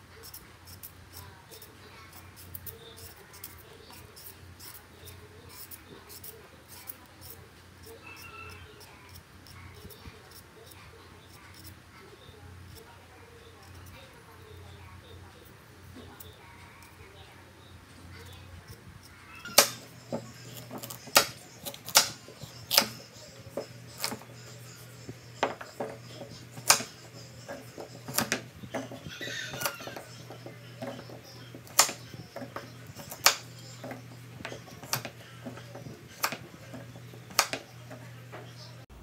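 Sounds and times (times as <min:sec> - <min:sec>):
knife chopping on cutting board: 0:19.5 - 0:23.0, 0:25.4 - 0:37.7.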